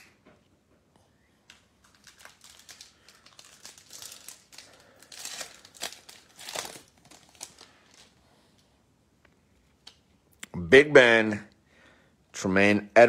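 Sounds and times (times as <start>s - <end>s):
foil wrapper crinkling and tearing: 1.5s - 8.2s.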